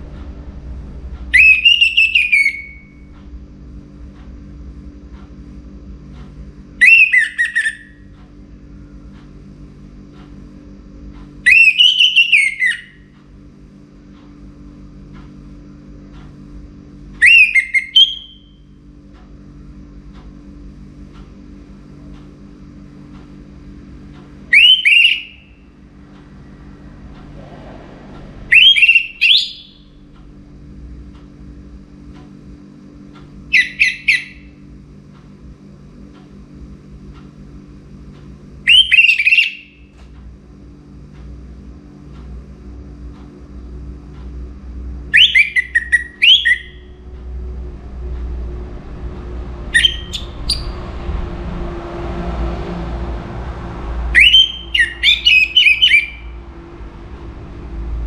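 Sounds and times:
steady low hum: 0.0 - 58.0
thrush singing whistled phrases: 1.3 - 3.0, 6.8 - 7.9, 11.5 - 12.9, 17.2 - 18.5, 24.5 - 25.6, 28.5 - 29.9, 33.5 - 34.4, 38.7 - 39.7, 45.1 - 46.9, 49.7 - 50.8, 54.1 - 56.4.

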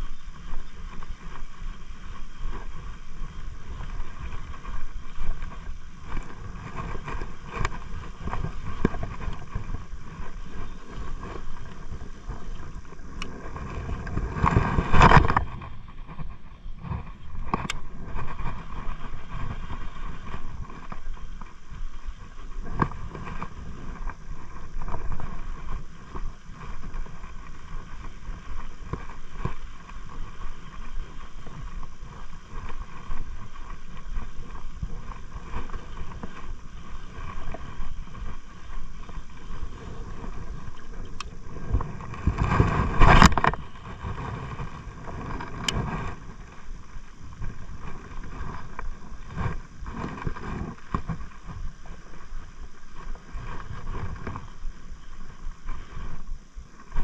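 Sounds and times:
faint scattered clicks: 0.0 - 15.6, 17.0 - 44.6
wind and water noise: 0.0 - 57.0.

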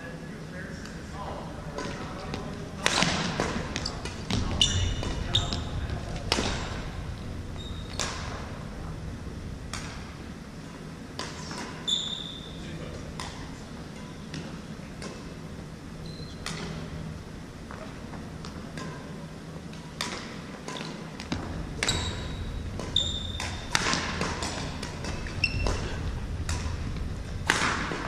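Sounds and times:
sneaker squeaks: 3.0 - 6.8, 7.5 - 8.5, 11.8 - 12.7, 16.0 - 16.8, 20.7 - 21.1, 21.8 - 24.2, 25.0 - 26.2
racket striking shuttlecock: 19.7 - 28.0.

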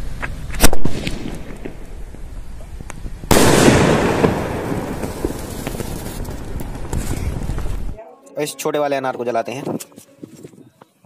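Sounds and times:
firework burst crackling: 0.0 - 8.0
aerial firework bang: 0.6 - 1.8, 3.3 - 8.0.

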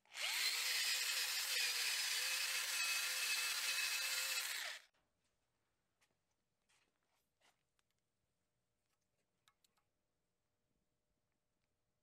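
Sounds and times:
rotary tool motor whine: 0.1 - 4.8.

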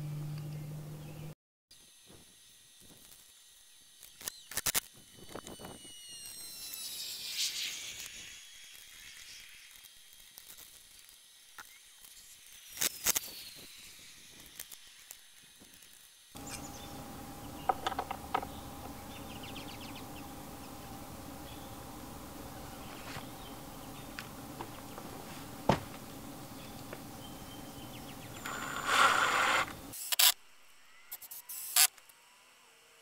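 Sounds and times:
metal clicks and knocks: 16.4 - 19.3
short falling whine: 16.4 - 29.9
steady hum: 16.4 - 30.0.

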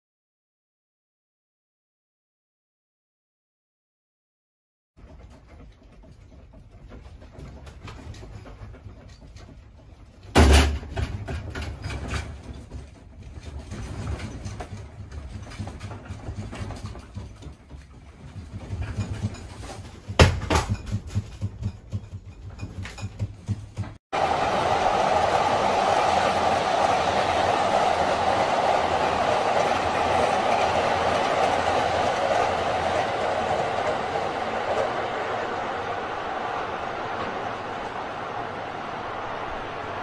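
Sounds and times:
knocking and rattling: 5.0 - 24.0.

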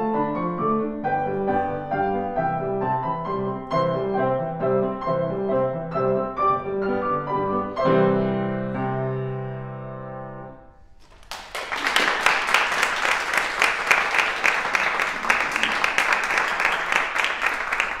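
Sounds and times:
audience applause: 11.0 - 18.0.

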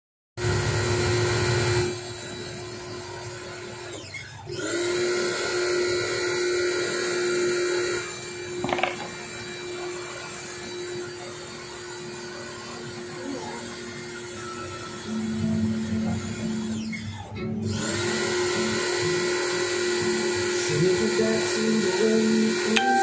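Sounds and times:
electric hair clipper buzzing: 4.5 - 11.0, 17.6 - 23.0.

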